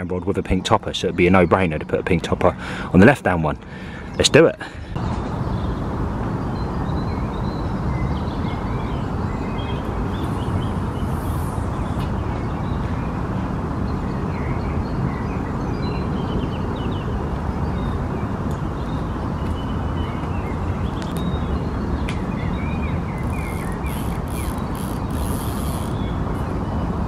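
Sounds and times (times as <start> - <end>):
small birds chirping: 7.0 - 13.0, 18.6 - 27.0.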